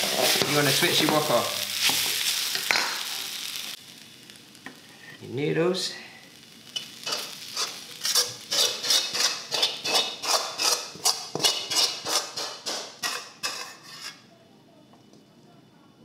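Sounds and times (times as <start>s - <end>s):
metal spatula scraping a wok: 0.0s - 0.8s, 6.8s - 14.3s.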